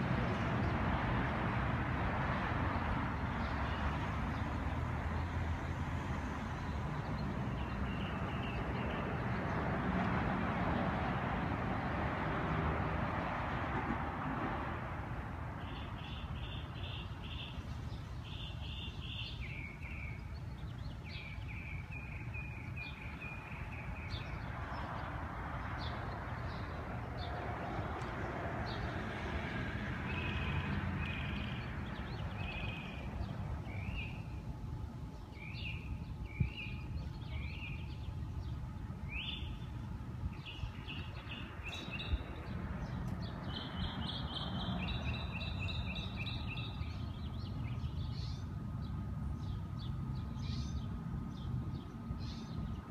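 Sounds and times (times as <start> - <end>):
small birds chirping: 6.4 - 9.6, 15.6 - 29.0, 30.1 - 34.4, 35.2 - 52.9.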